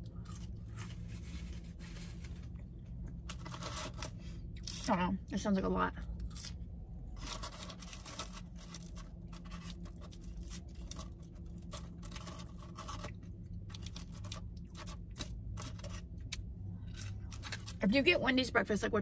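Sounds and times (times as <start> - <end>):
low steady hum: 0.0 - 19.0
paper wrapping crinkling: 3.2 - 4.8, 7.2 - 16.0.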